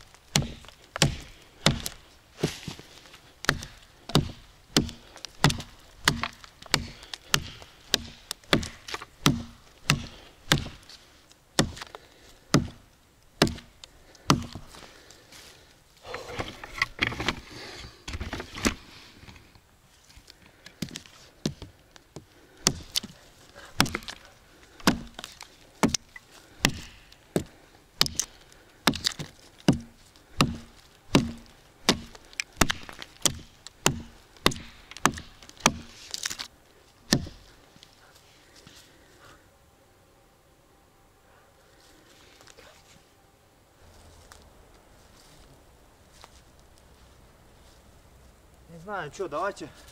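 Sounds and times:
rustling: 0:00.0 - 0:39.4, 0:41.5 - 0:43.2, 0:43.8 - 0:49.9
axe chopping into tree trunk: 0:00.3 - 0:02.8, 0:03.4 - 0:10.8, 0:11.6 - 0:11.9, 0:12.5 - 0:12.8, 0:13.4 - 0:13.7, 0:14.3 - 0:14.6, 0:22.6 - 0:23.1, 0:23.7 - 0:24.2, 0:24.8 - 0:36.5, 0:37.1 - 0:37.4.

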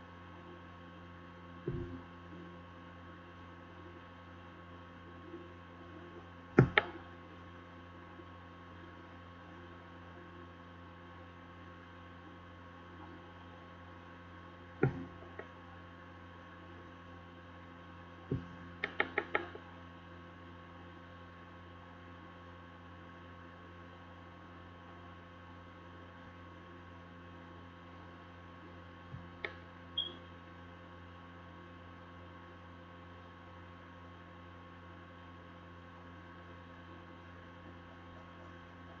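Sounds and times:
electrical mains hum: 0:00.0 - 0:39.0
sharp knock: 0:06.6 - 0:06.9.

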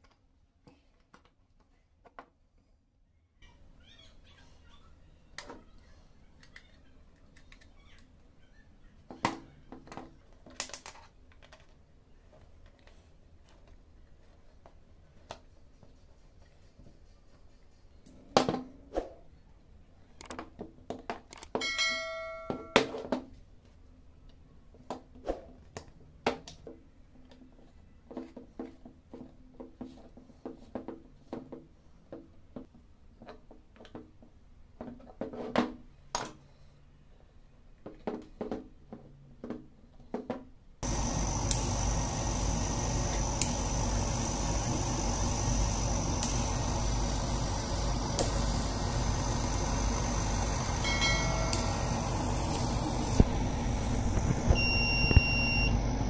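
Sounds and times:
ringing metallic clink: 0:21.6 - 0:22.9, 0:50.8 - 0:51.9
laser cutter humming and hissing: 0:40.8 - 0:56.0.

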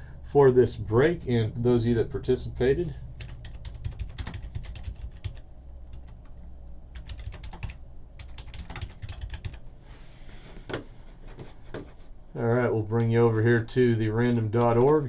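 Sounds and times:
low steady hum: 0:00.0 - 0:15.0
computer keyboard typing: 0:03.2 - 0:06.2, 0:06.9 - 0:09.6, 0:14.2 - 0:15.0.

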